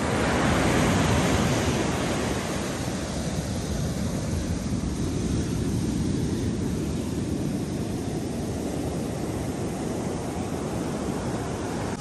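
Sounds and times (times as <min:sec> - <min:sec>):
waves breaking on beach: 0:00.0 - 0:12.0
wind buffeting microphone: 0:00.0 - 0:12.0.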